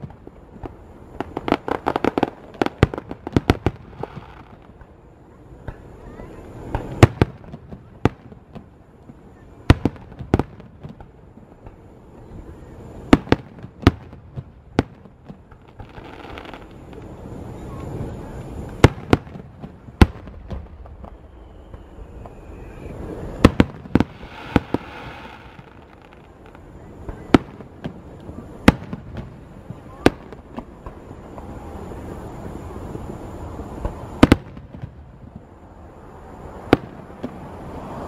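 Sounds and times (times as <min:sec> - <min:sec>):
fireworks shells bursting: 0:21.0 - 0:29.3.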